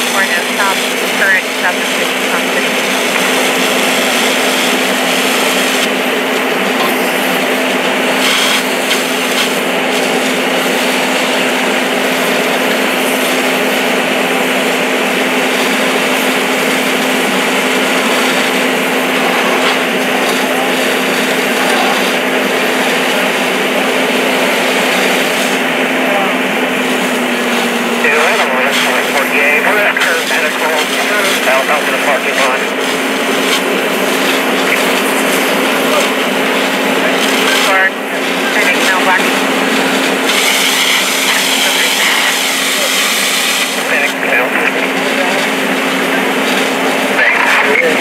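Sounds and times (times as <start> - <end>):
fire hose spraying water: 0.0 - 48.0
pump engine drone: 0.0 - 48.0.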